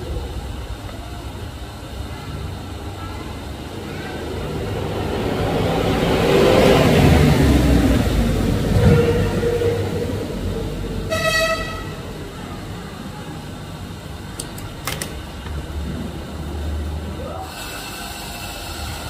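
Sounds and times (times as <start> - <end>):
short horn toot: 11.1 - 12.0.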